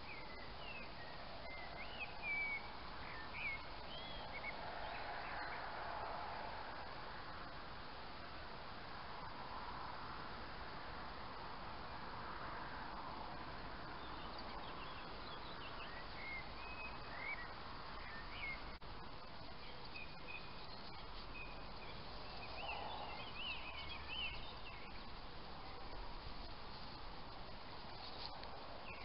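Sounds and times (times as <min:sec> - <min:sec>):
small birds chirping: 0:00.0 - 0:05.8, 0:13.8 - 0:29.0
steady background hiss: 0:00.0 - 0:29.0.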